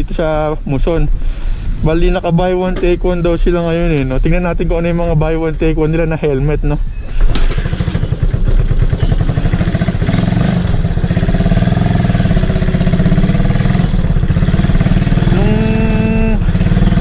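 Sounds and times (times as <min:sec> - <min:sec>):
motorcycle engine running: 0:07.3 - 0:17.0.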